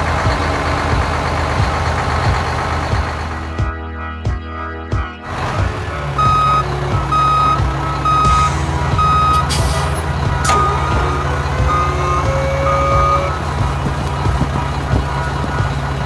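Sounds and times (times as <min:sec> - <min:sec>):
truck engine running: 0:00.0 - 0:03.9, 0:05.2 - 0:16.0
reversing alarm beeping: 0:05.5 - 0:15.9
clunk: 0:08.3 - 0:12.1.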